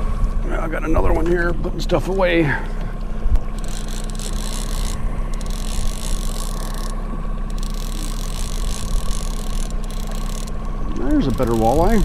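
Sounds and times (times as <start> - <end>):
boat motor humming: 0.0 - 12.0
wind: 0.0 - 12.0.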